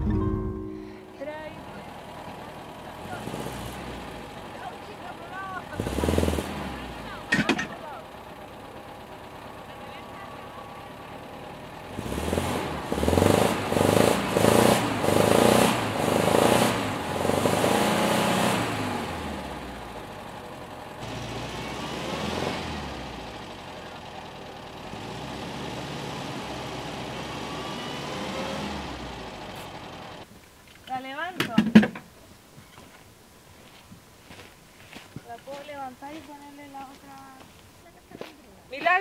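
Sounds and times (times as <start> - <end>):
van engine revving: 0.0 - 30.3.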